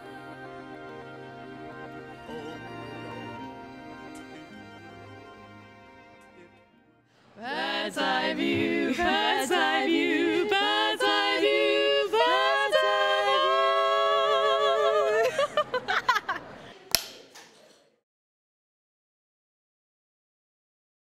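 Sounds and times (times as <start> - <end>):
women singing unaccompanied: 0.0 - 3.4, 7.4 - 15.6
women laughing: 15.0 - 16.8.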